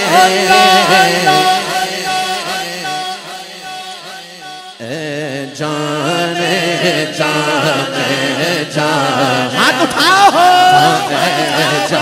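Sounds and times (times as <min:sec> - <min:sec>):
man chanting into a microphone: 0:00.0 - 0:12.0.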